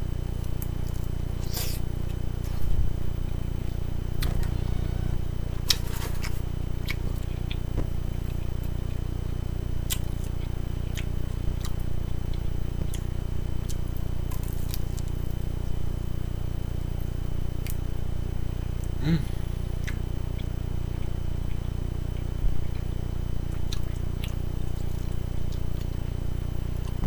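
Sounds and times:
low hum: 0.0s - 27.0s
person chewing: 0.4s - 4.4s, 5.6s - 9.1s, 9.8s - 15.2s, 18.8s - 22.9s, 23.5s - 26.0s.

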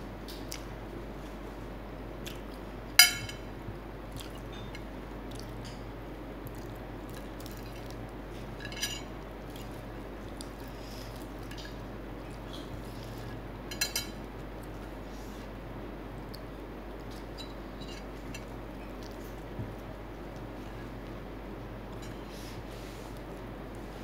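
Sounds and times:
clinks against ceramic plate: 3.0s - 3.4s.

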